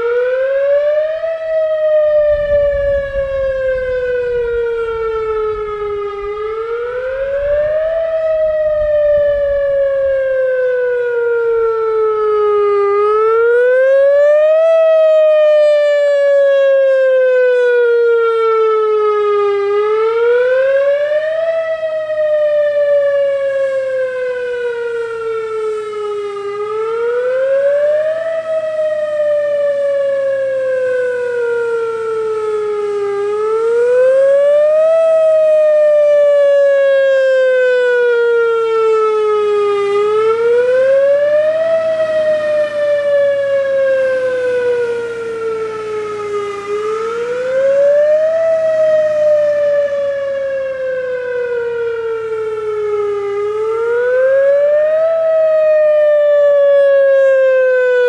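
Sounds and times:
electronic siren wail: 0:00.0 - 0:58.0.

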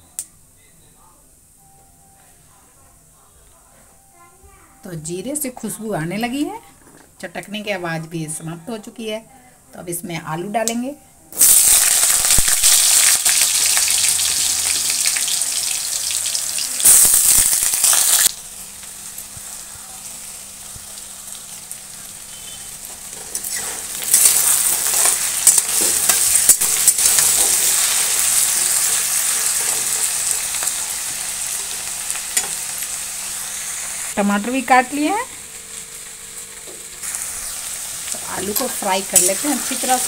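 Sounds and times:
potatoes sizzling in oil: 0:11.4 - 0:40.0.

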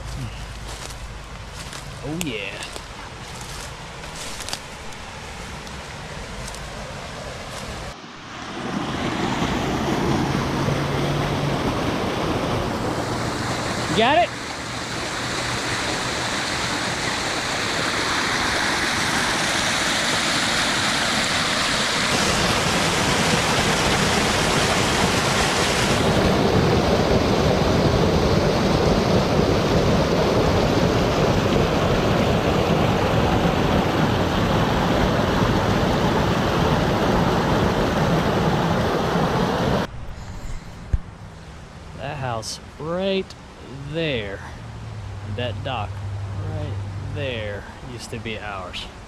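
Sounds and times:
water rushing over dam spillway: 0:02.1 - 0:02.6, 0:08.5 - 0:39.9.

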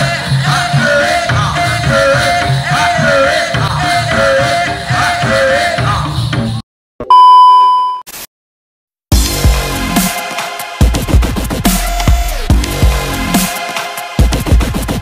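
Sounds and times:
test-tone beep: 0:07.0 - 0:08.1
drums beating steady pattern: 0:09.1 - 0:15.0.

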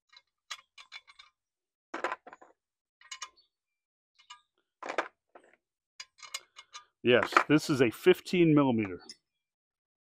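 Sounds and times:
steel sockets clinking: 0:00.1 - 0:01.4, 0:03.0 - 0:03.5, 0:06.0 - 0:07.5.

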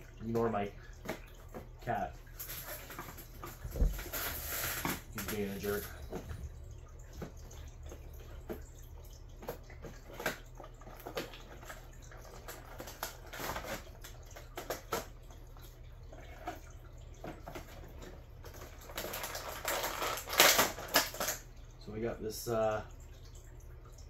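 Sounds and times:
packaging crinkling and tearing: 0:02.4 - 0:05.9, 0:10.9 - 0:15.1, 0:18.5 - 0:21.4
packaging rustling and clicking: 0:18.4 - 0:21.4.

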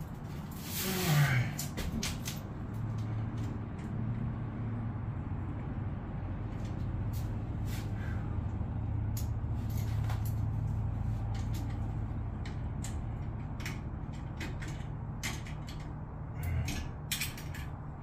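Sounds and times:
engine droning: 0:00.0 - 0:18.0
metal hardware clicking: 0:12.4 - 0:17.8.

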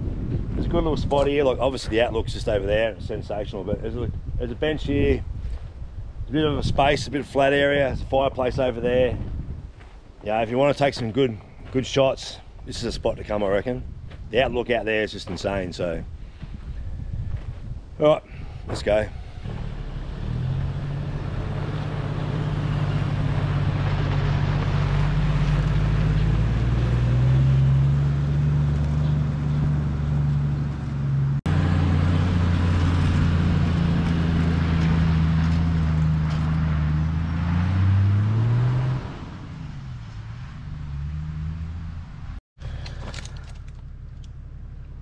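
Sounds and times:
vehicle engine running: 0:18.6 - 0:38.5, 0:40.0 - 0:45.0.

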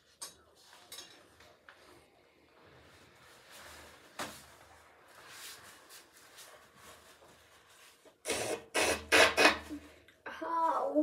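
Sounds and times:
quiet rustling: 0:00.0 - 0:08.2.

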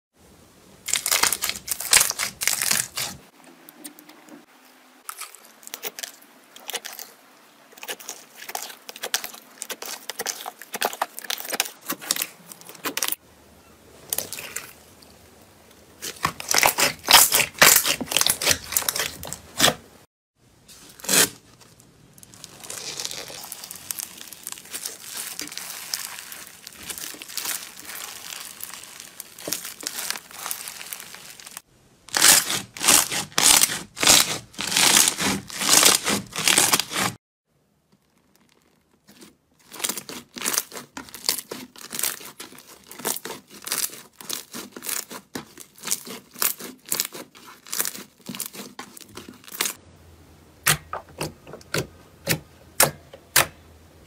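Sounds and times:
slime crackling and popping: 0:00.8 - 0:03.2, 0:16.0 - 0:19.7, 0:21.0 - 0:37.2, 0:37.9 - 0:49.8.

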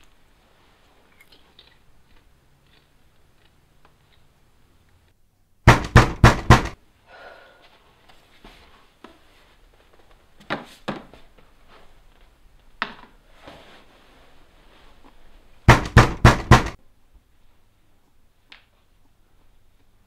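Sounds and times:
knocking on door: 0:05.7 - 0:06.8, 0:15.7 - 0:16.8.

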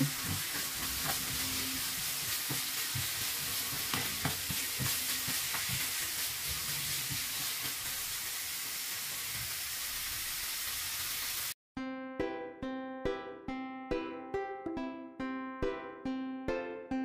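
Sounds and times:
vegetables sizzling in oil: 0:00.0 - 0:11.6
plucked string music: 0:11.8 - 0:17.0.

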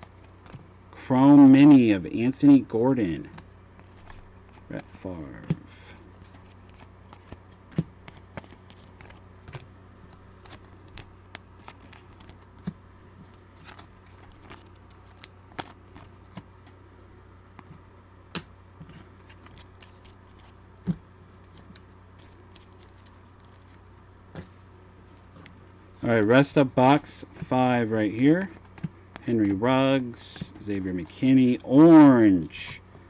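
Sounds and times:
trading cards clicking and snapping: 0:03.3 - 0:16.5.

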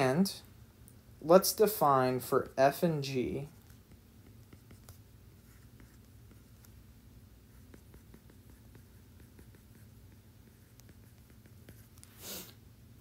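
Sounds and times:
low steady hum: 0:00.0 - 0:13.0
stylus tapping on tablet screen: 0:03.7 - 0:05.0, 0:07.6 - 0:12.0.

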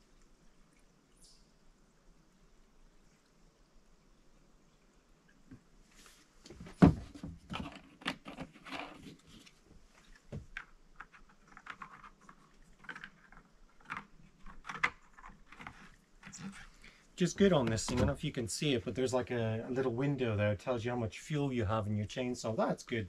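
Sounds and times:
small plastic clicks and rattles: 0:10.5 - 0:16.5.

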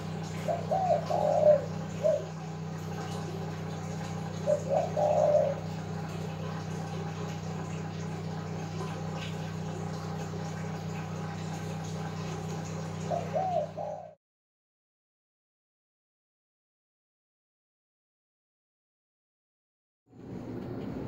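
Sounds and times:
dove cooing: 0:00.0 - 0:09.4, 0:11.3 - 0:14.2
steady low hum: 0:00.0 - 0:14.2.

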